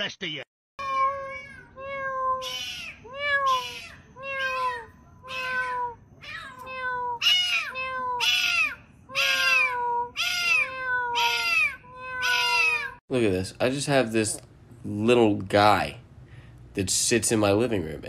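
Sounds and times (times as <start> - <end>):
kitten meowing: 0.8 - 13.0.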